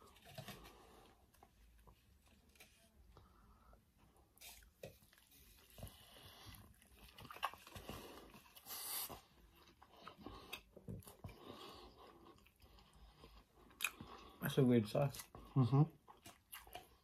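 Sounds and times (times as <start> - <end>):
wet chewing sounds: 4.4 - 17.0.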